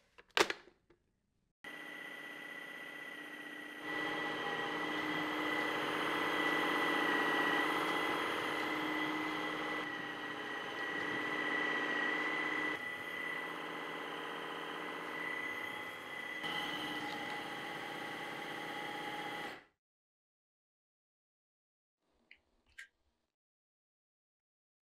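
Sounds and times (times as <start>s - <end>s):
cordless vacuum motor whine: 1.7s - 19.6s.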